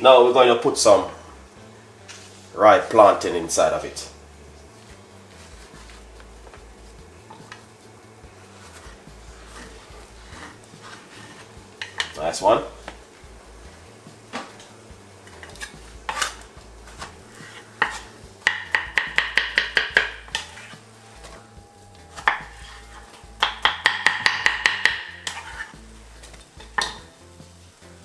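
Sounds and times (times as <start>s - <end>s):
knife knocking on wooden board: 17.8s - 20.2s, 23.4s - 25.2s.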